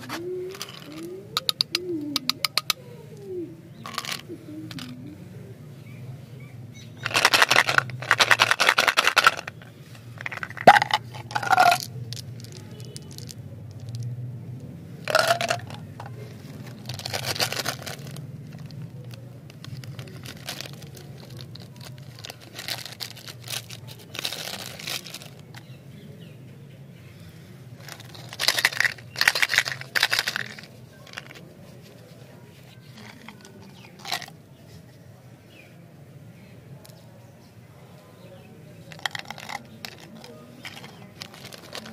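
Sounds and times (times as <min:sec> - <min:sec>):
plastic wrappers crinkling: 0:00.0 - 0:01.8, 0:07.0 - 0:14.0, 0:15.1 - 0:25.7, 0:27.8 - 0:31.4, 0:39.0 - 0:41.9.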